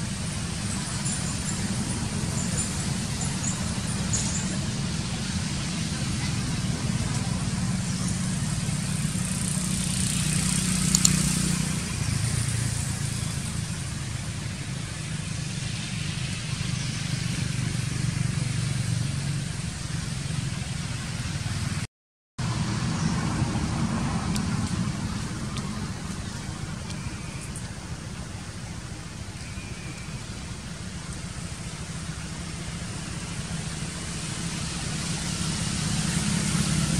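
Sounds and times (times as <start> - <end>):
vehicle engine humming: 0.0 - 36.9.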